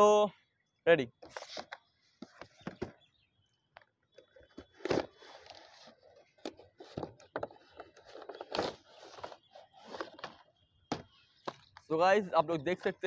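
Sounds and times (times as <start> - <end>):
cardboard scraping and rustling: 1.2 - 3.0, 4.4 - 10.6.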